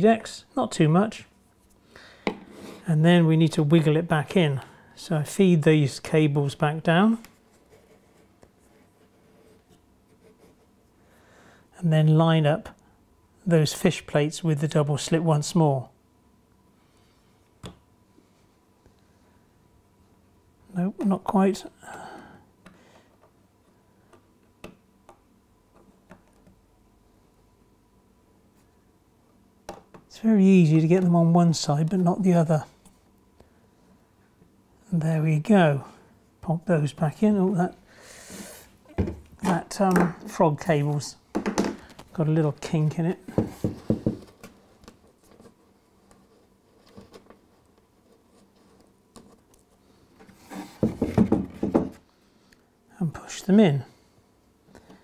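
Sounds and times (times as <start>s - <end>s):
knocks and rubbing: 43.3s - 44.4s, 50.4s - 52.0s.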